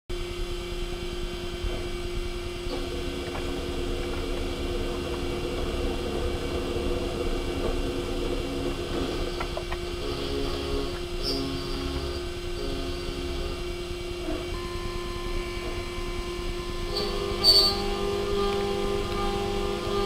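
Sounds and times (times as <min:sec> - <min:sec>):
lower machine tone: 0:00.1 - 0:20.0
machine rumble: 0:00.1 - 0:20.0
milling spindle tone: 0:02.7 - 0:20.0.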